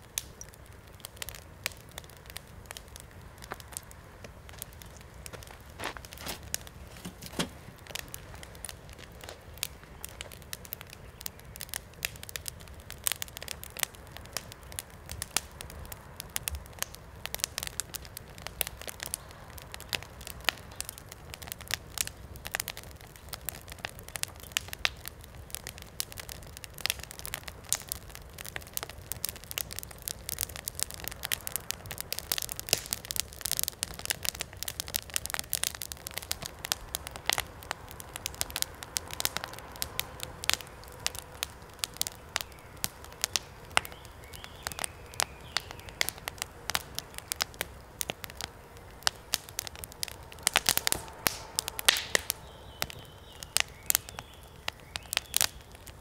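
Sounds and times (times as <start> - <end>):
wood fire crackling and popping: 0.0 - 56.0.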